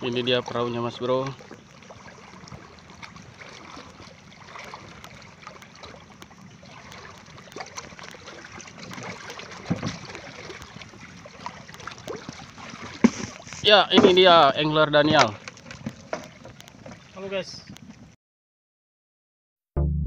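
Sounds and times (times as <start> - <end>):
boat bump: 0.0 - 18.0
water lapping against boat hull: 0.0 - 18.2.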